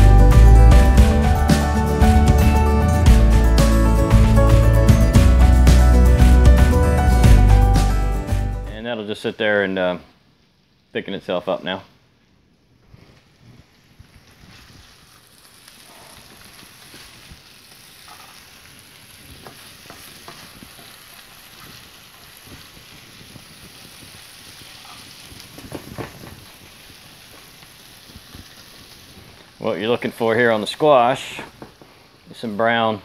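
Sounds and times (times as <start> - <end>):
squash sizzling in skillet: 13.7 - 32.3.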